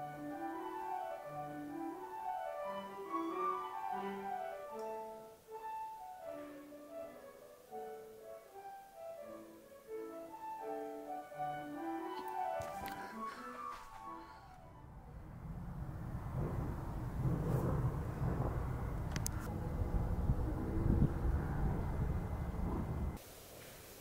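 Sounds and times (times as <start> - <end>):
soft instrumental music: 0.0 - 15.0.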